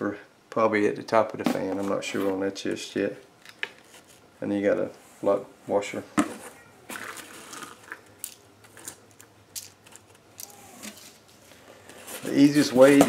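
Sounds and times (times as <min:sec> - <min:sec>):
plastic crinkling: 0:06.9 - 0:13.0.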